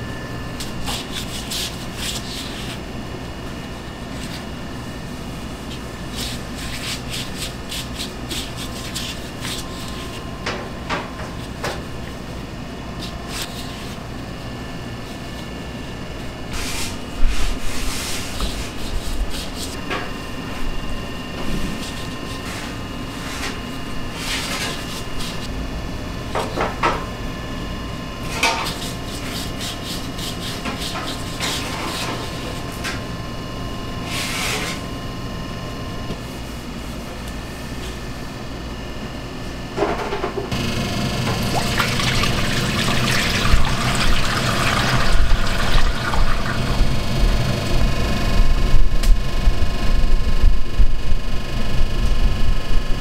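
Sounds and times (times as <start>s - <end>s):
steady shop hum: 0.0s - 53.0s
oil pouring into deep fryer: 41.0s - 47.0s.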